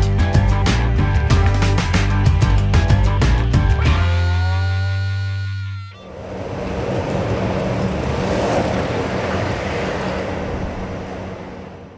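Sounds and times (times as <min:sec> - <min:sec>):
longboard wheels rolling on concrete: 0:06.0 - 0:11.9.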